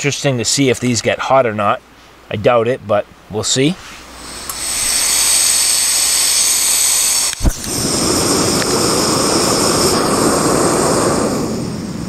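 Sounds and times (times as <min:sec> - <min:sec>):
gas flame roaring: 0:03.8 - 0:12.0
gas hissing: 0:03.8 - 0:12.0
gas burner lighting pop: 0:07.2 - 0:08.8.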